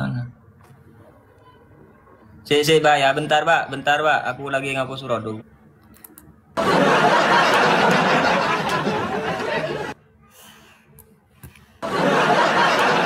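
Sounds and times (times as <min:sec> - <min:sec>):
loud burst of laughter: 0:06.6 - 0:10.0, 0:11.8 - 0:13.0.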